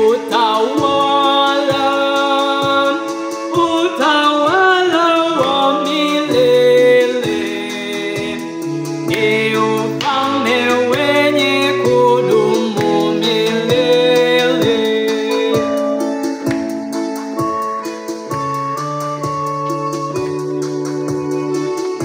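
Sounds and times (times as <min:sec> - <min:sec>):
man singing a hymn: 0:00.0 - 0:16.0
held chords with steady beat: 0:00.0 - 0:22.0.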